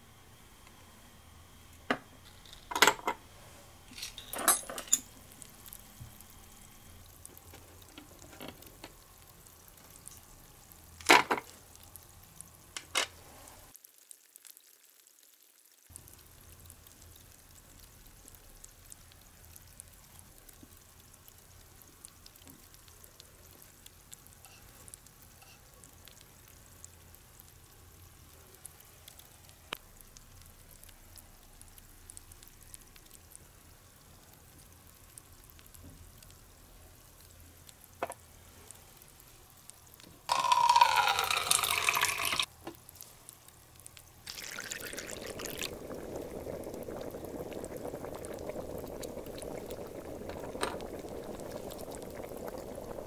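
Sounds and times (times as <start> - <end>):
faint steady hiss: 0.0 - 53.0
tiny ticks: 28.7 - 33.4
metal toy pot knocking: 40.3 - 42.4.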